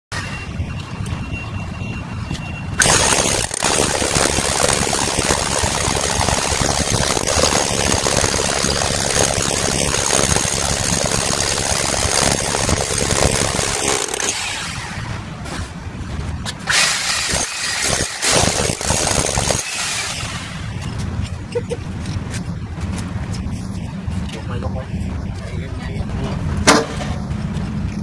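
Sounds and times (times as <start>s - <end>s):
hammer drill boring into concrete: 2.8s - 15.1s, 16.7s - 20.7s.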